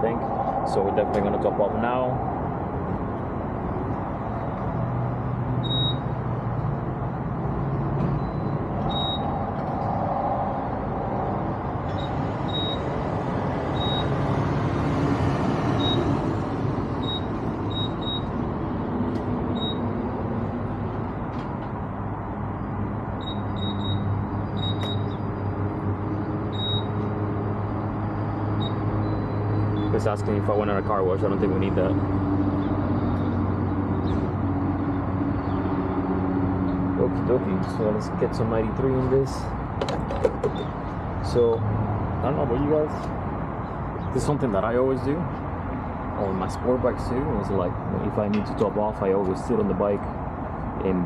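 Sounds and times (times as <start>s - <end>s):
vehicle engines and traffic: 0.0s - 51.0s
short high beeps: 8.2s - 9.3s.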